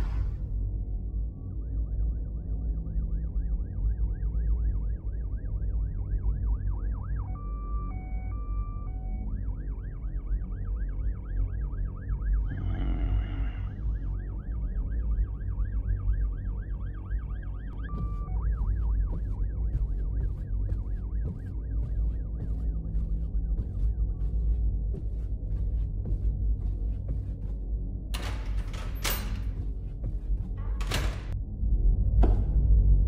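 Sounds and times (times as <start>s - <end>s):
electronic alarm siren wailing: 1.0s - 24.0s
deep steady rumble: 11.8s - 33.0s.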